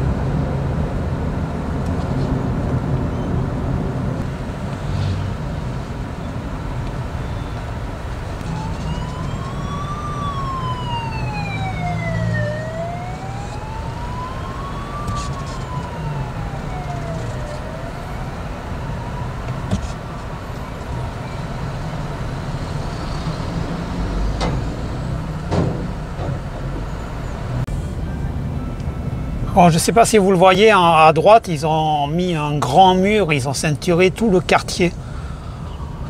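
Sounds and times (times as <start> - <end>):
traffic engines rumbling: 0.0 - 36.0
siren wailing: 7.0 - 25.2, 35.5 - 36.0.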